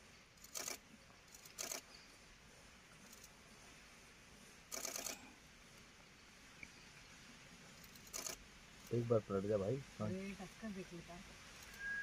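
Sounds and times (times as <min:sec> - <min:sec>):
rapid camera shutter clicks: 0:00.4 - 0:00.8, 0:01.4 - 0:01.9, 0:04.7 - 0:05.2, 0:07.9 - 0:08.4.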